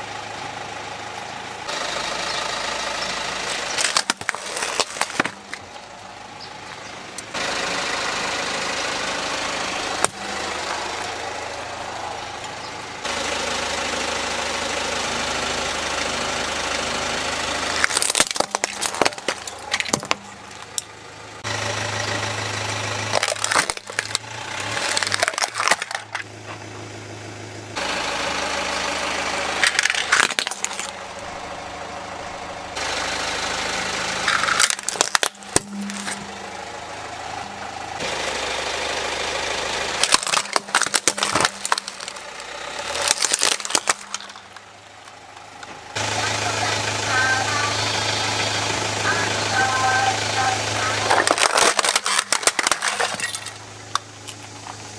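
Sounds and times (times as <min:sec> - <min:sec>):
car engine idling: 0:00.0 - 0:54.9
plastic toys cracking: 0:03.4 - 0:05.7, 0:17.7 - 0:20.9, 0:23.0 - 0:26.3, 0:29.6 - 0:31.0, 0:34.2 - 0:36.4, 0:40.0 - 0:45.5, 0:51.0 - 0:54.9.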